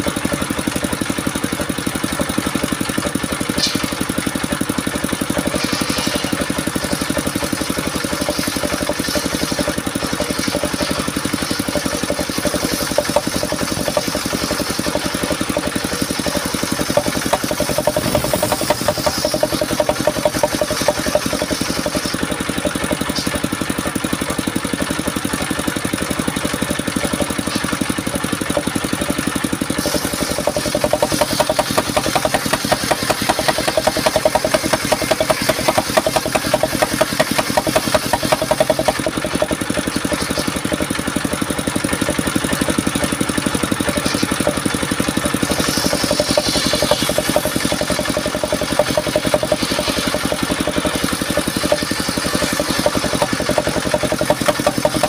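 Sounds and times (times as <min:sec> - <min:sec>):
portable sawmill engine running: 0:00.0 - 0:55.0
saw blade ripping wood: 0:02.8 - 0:04.1, 0:05.2 - 0:22.4, 0:29.8 - 0:40.8, 0:43.8 - 0:55.0.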